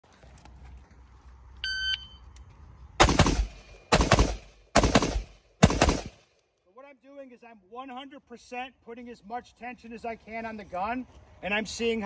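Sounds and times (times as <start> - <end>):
shot timer beep: 1.6 - 2.2
rifle shots: 3.0 - 6.3.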